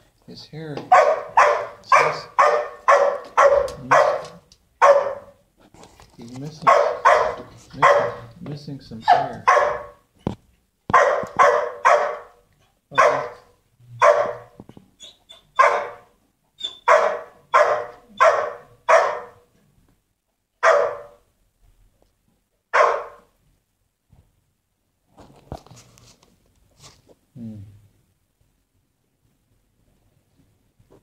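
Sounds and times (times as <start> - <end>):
dog barking: 0.9 - 5.4, 6.6 - 8.4, 9.0 - 10.0, 10.9 - 14.6, 15.5 - 19.5, 20.6 - 21.2, 22.7 - 23.3.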